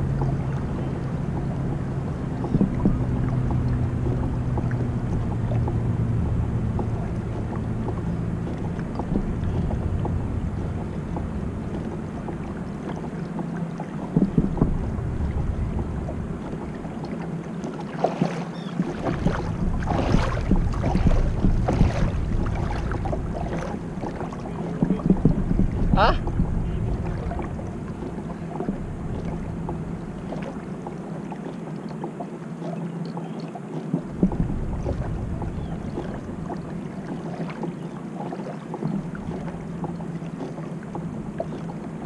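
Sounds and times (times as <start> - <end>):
wind on microphone: 0.0 - 13.2, 13.9 - 17.2, 18.2 - 30.7, 34.0 - 37.4
low steady hum: 0.0 - 42.0
water splashing against kayak hull: 0.0 - 42.0
knocks on kayak: 2.4 - 5.9, 6.6 - 13.2, 13.9 - 16.8, 18.0 - 30.5, 34.1 - 36.3.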